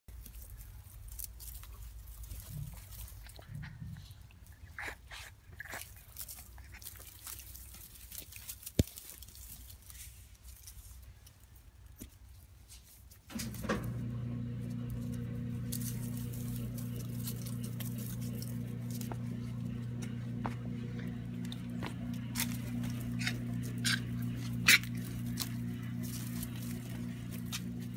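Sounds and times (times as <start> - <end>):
puppies scuffling: 0.1 - 11.0, 12.0 - 27.9
electric motor hum: 13.3 - 27.9.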